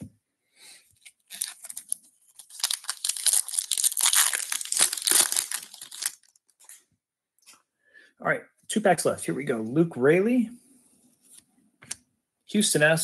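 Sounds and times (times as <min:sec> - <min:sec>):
foil wrapper crinkling: 0:01.0 - 0:06.8.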